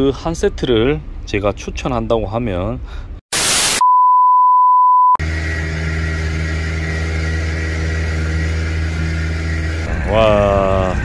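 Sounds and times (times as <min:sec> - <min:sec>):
outboard motor running: 0:05.2 - 0:11.0.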